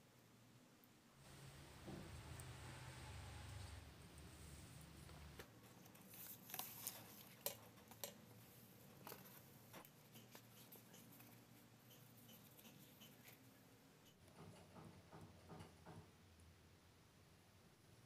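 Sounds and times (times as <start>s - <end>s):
banana leaf crinkling: 5.8s - 8.0s.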